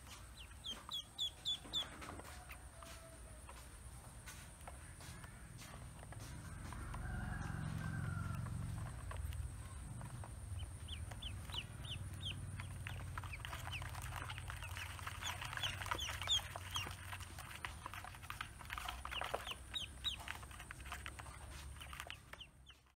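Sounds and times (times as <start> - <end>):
ducklings peeping: 0.0 - 23.0
low background rumble: 5.2 - 23.0.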